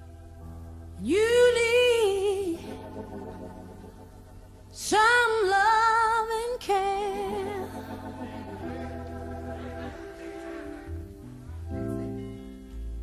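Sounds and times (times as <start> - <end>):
soft sustained backing chords: 0.0 - 13.0
woman singing with vibrato: 1.0 - 3.4, 4.7 - 9.0.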